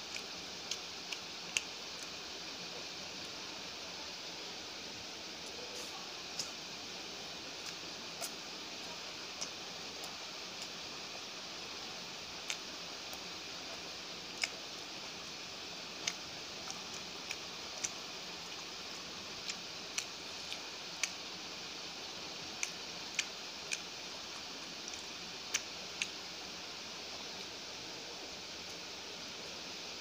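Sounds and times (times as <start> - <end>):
steady hiss: 0.0 - 30.0
chewing mouth clicks: 24.9 - 26.2.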